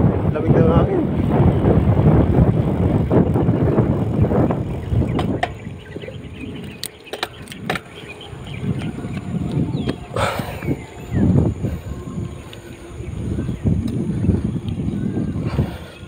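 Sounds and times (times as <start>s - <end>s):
wind and road noise: 0.0s - 16.0s
sharp clicks: 6.6s - 8.0s.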